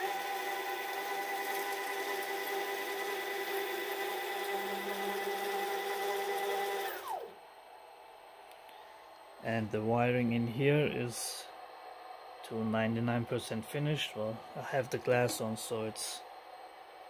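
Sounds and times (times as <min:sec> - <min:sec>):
stepper motors whining: 0:00.0 - 0:07.4.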